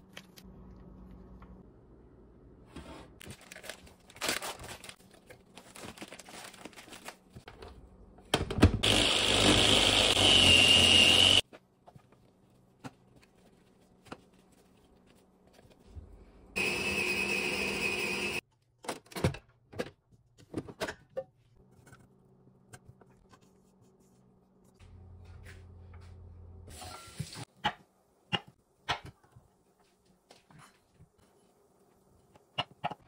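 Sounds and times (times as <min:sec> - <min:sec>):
electric food chopper running: 0:08.8 - 0:11.4, 0:16.6 - 0:18.4.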